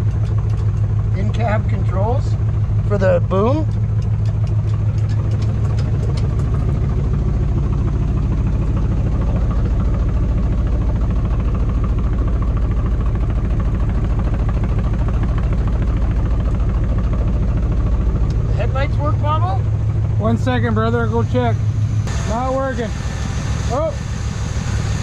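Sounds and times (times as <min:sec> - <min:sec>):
truck engine idling: 0:00.0 - 0:25.0.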